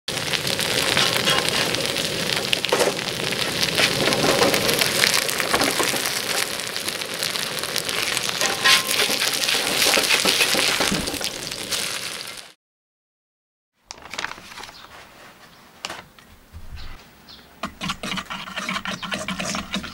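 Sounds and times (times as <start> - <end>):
pancake sizzling in oil: 0.1 - 12.6
metal spatula scraping: 0.9 - 1.8, 8.4 - 10.8, 17.6 - 19.9.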